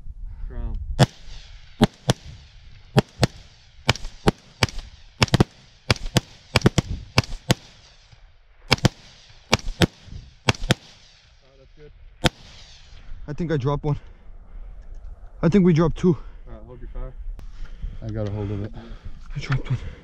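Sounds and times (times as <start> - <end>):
rifle shots echoing: 1.0 - 11.4, 12.2 - 13.0.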